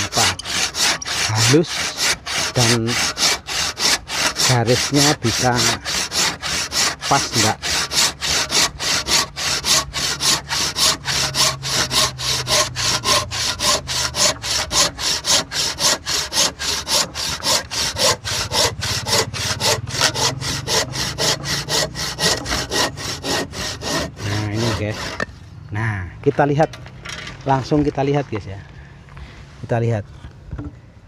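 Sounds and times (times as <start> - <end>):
hand saw cutting wood: 0.0 - 25.3.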